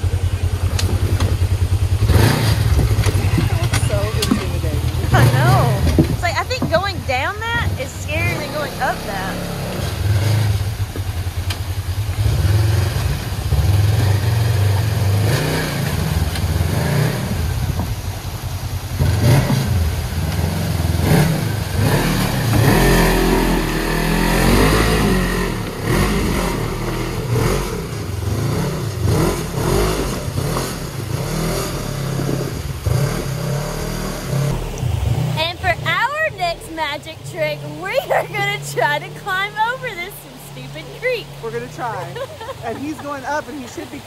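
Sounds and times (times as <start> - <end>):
engine revving under load: 0.0 - 44.0.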